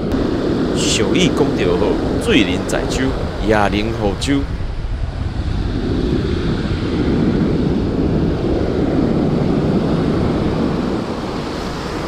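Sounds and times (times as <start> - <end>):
wind rumbling on microphone: 0.0 - 12.0
surf breaking on shore: 0.1 - 5.2.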